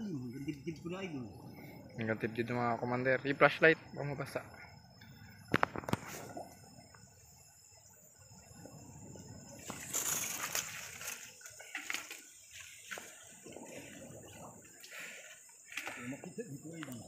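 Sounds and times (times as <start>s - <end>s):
insects chirring: 0.0s - 17.0s
leaves rustling: 9.6s - 14.0s.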